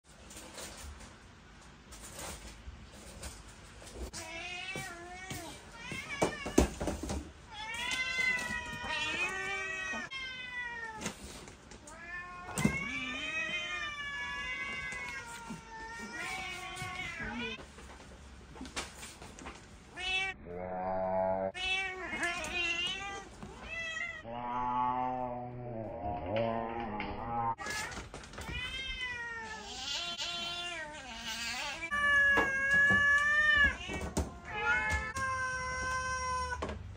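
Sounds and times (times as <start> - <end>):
cats meowing: 4.1 - 17.6, 19.9 - 36.8.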